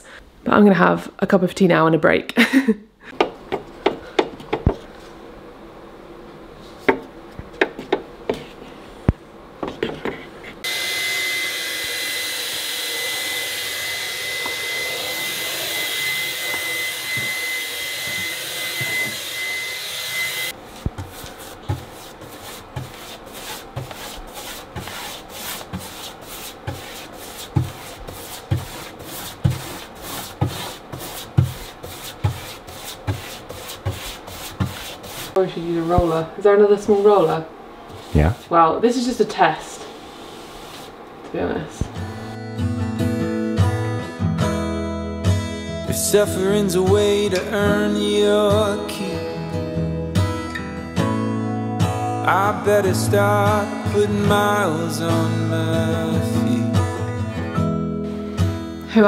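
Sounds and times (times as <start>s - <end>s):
handheld vacuum whining: 10.6s - 20.6s
paintbrush scrubbing on wood: 20.6s - 36.2s, 36.8s - 38.5s, 40.0s - 41.0s
stick stirring paint in tin: 20.7s - 35.4s.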